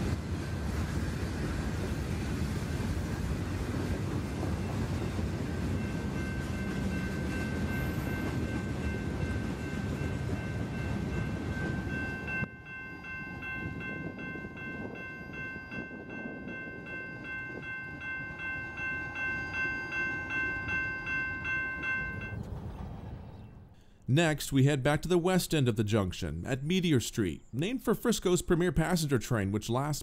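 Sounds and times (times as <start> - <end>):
freight train rolling past: 0.0 - 25.7
grade-crossing bell ringing: 3.3 - 22.5.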